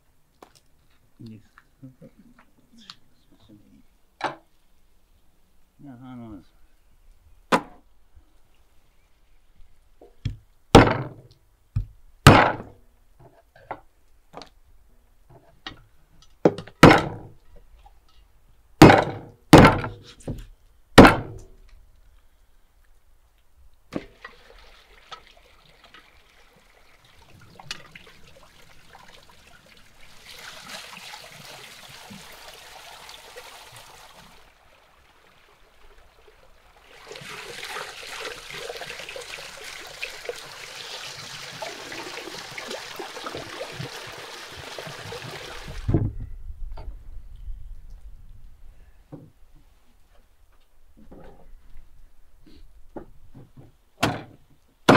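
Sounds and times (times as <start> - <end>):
water running into stone trough: 23.9 - 45.9.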